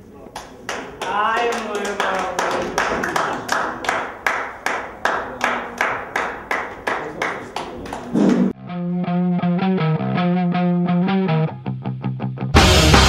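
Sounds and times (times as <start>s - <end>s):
audience clapping in unison: 0.3s - 8.6s.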